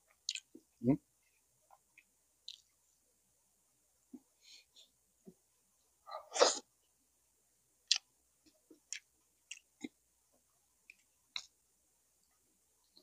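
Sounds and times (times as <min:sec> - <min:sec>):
wet chewing and lip smacks: 0:00.2 - 0:00.6, 0:01.9 - 0:02.7, 0:07.9 - 0:08.1, 0:08.8 - 0:10.0.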